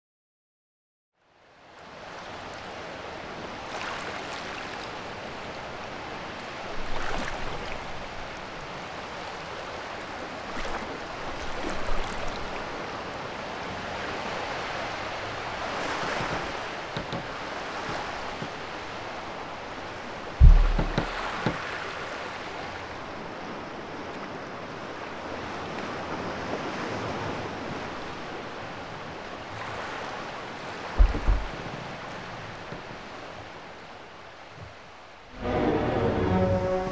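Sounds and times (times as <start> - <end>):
ocean waves washing: 2.3 - 36.9
low thump: 20.4 - 21.6, 31.0 - 31.6.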